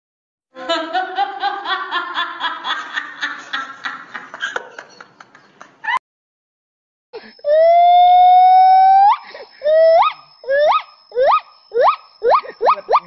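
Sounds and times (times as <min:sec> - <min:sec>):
rapid rhythmic laughter: 0:00.6 - 0:06.0, 0:12.3 - 0:13.0
rising squeak: 0:07.3 - 0:13.0.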